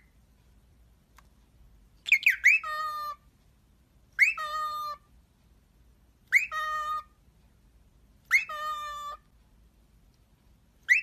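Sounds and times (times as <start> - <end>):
cockatiel calling: 2.0 - 3.3, 4.2 - 5.1, 6.2 - 7.2, 8.2 - 9.3, 10.8 - 11.0.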